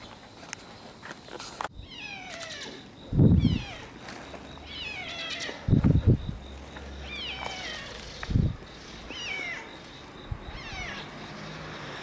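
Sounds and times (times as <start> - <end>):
cat crying gruffly: 10.5 - 11.1.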